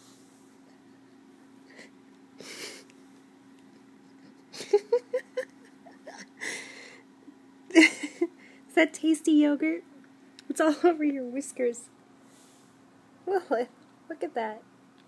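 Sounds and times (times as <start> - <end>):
soft breathy puffs: 12.2 - 12.9.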